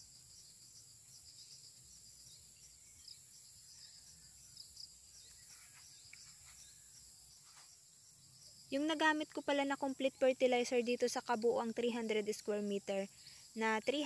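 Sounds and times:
high insect drone: 0:00.0 - 0:14.0
small chirps: 0:02.9 - 0:08.0.

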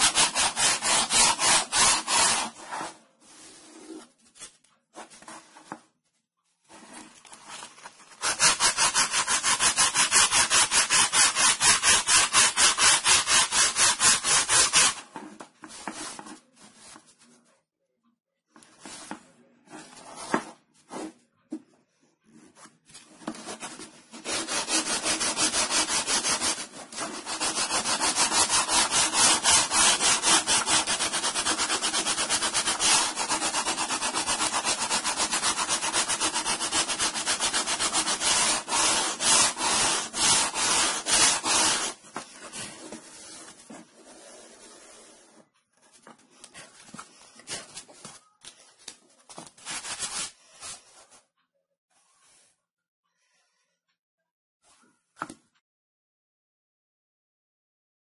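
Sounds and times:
sanding block rasping on board: 0:00.0 - 0:02.9, 0:08.2 - 0:15.0, 0:24.1 - 0:45.2.

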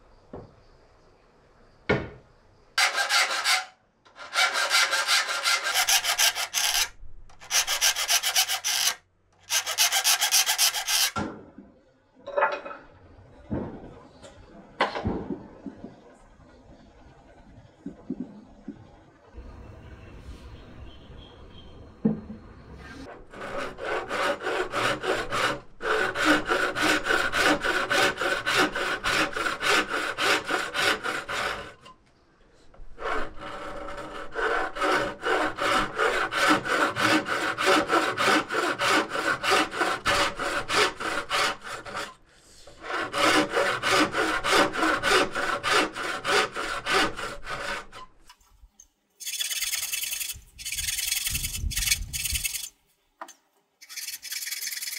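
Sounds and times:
hand saw cutting wood: 0:02.8 - 0:11.2, 0:23.0 - 0:31.9, 0:33.0 - 0:48.1, 0:49.2 - 0:52.7, 0:53.8 - 0:54.9
fine rasping: 0:04.3 - 0:11.2, 0:49.2 - 0:52.7, 0:53.8 - 0:54.9.

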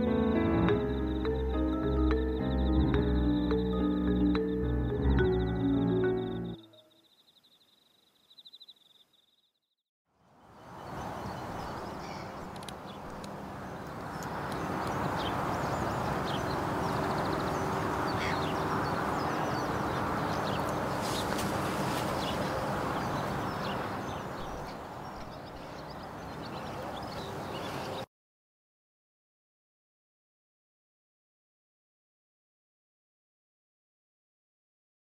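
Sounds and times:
bird chirps: 0:00.8 - 0:09.6, 0:10.4 - 0:28.1.

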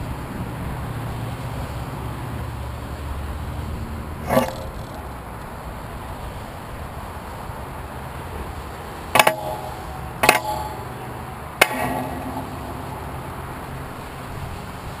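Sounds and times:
knocks on tram with ringing: 0:09.2 - 0:13.7.

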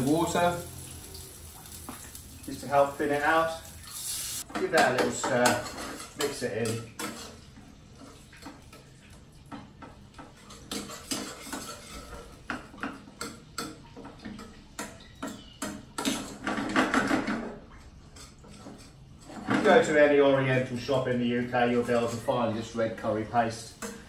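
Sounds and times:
metal spoon scraping frying pan: 0:04.0 - 0:07.5, 0:10.4 - 0:12.5.

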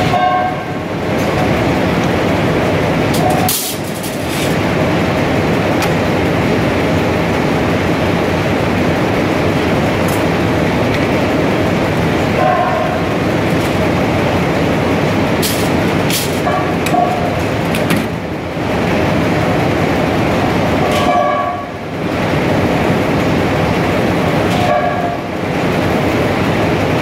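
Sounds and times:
textile machinery clatter: 0:00.0 - 0:27.0.

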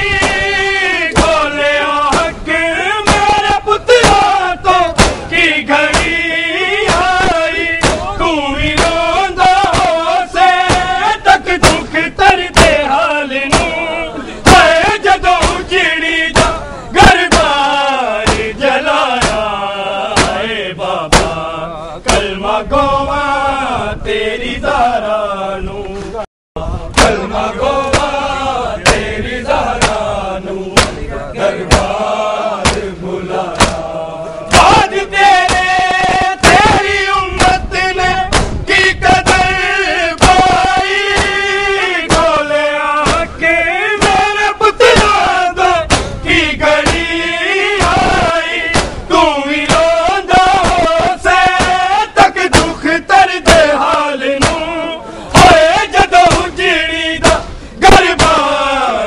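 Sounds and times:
men chanting a lament: 0:00.0 - 0:59.0
hands slapping chests: 0:05.0 - 0:05.3, 0:29.8 - 0:30.0, 0:30.8 - 0:31.1, 0:32.6 - 0:32.9, 0:33.5 - 0:33.9, 0:46.8 - 0:47.1.

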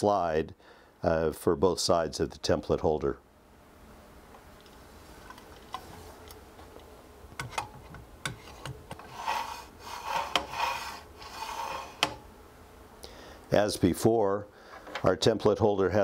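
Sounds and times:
metal holder sliding along frame: 0:07.4 - 0:12.2.

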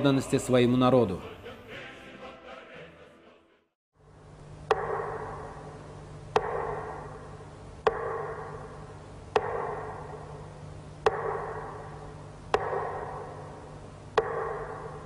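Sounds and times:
low steady hum: 0:04.0 - 0:15.0.

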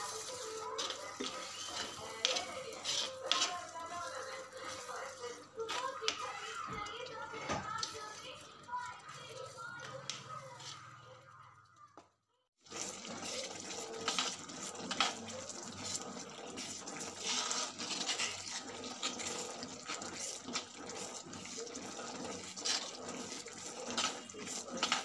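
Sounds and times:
gravy sizzling in a frying pan: 0:00.0 - 0:06.6, 0:12.6 - 0:25.0
spoon scraping and stirring: 0:00.0 - 0:11.0, 0:12.7 - 0:25.0.

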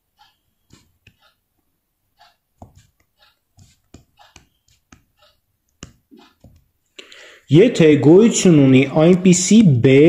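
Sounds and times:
stylus tapping on tablet screen: 0:00.1 - 0:07.0.

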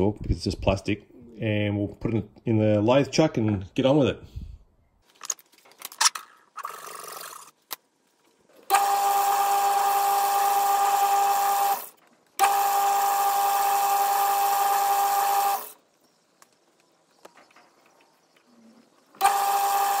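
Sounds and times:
mechanical hum: 0:05.6 - 0:20.0
metal lathe whining: 0:19.2 - 0:20.0.

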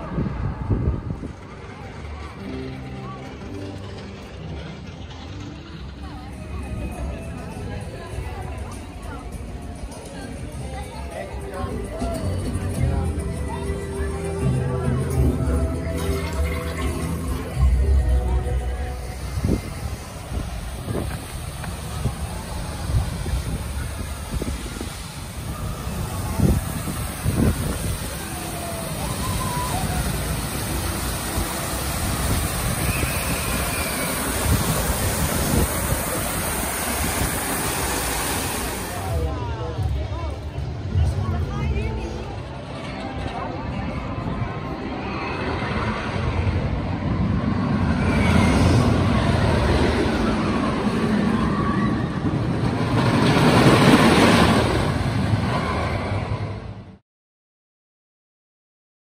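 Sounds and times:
roller coaster rumbling on wooden track: 0:00.0 - 0:57.0
water cascading down rocks: 0:18.7 - 0:39.3.

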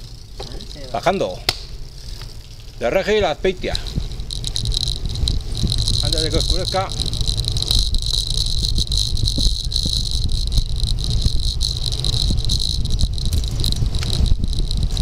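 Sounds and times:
steady high-pitched hum: 0:00.0 - 0:15.0
wind rushing over microphone: 0:02.7 - 0:15.0
camera mount rattling: 0:03.9 - 0:15.0.

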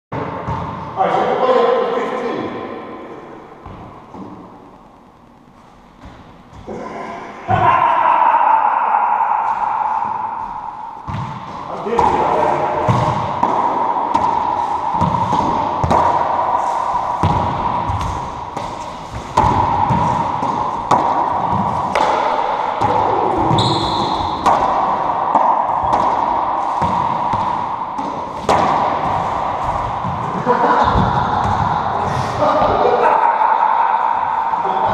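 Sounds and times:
steady hum: 0:00.2 - 0:34.9
racquetball ball smacks echoing: 0:09.5 - 0:32.8.

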